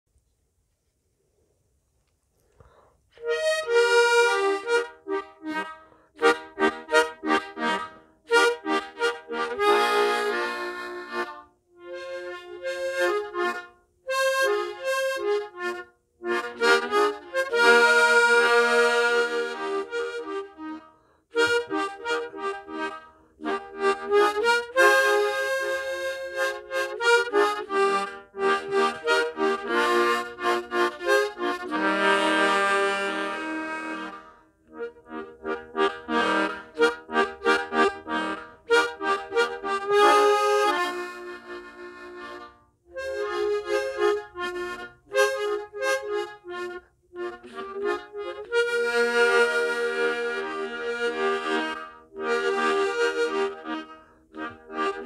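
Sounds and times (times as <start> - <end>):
mouth organ playing chords: 21.4 - 55.0.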